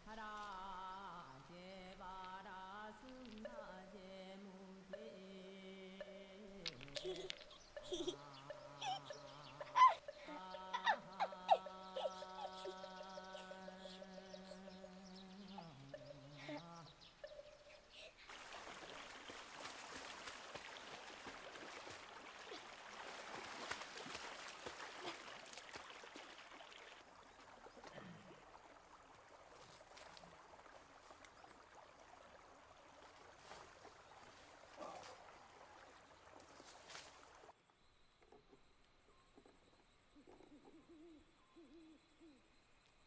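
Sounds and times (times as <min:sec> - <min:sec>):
rustling and clicks in undergrowth: 0:00.2 - 0:03.9, 0:06.5 - 0:09.0, 0:18.3 - 0:28.3, 0:29.1 - 0:31.6, 0:32.9 - 0:39.6
stream water rushing: 0:05.8 - 0:37.6.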